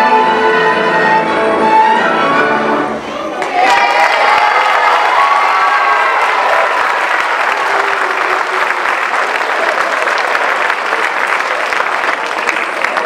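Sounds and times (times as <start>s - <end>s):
audience applauding: 3.4s - 13.0s.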